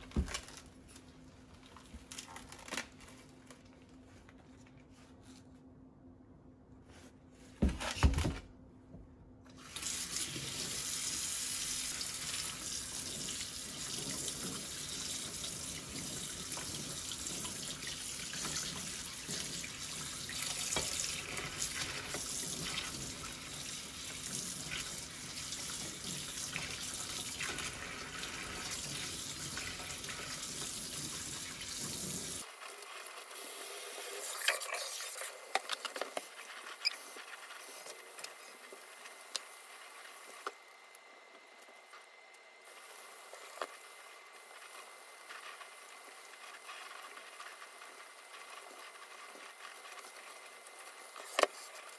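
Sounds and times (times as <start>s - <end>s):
tap water splashing in sink: 11.9s - 32.4s.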